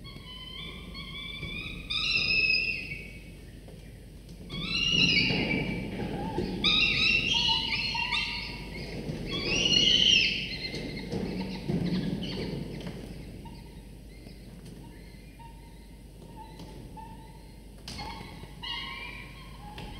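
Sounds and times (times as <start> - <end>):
falcon nestlings begging calls: 6.4 - 12.4.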